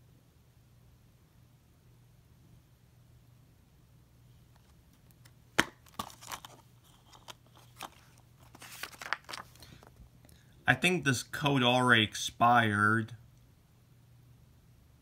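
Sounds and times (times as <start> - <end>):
paper insert rustling: 4.6 - 10.0
plastic case snapping open: 5.6 - 8.0.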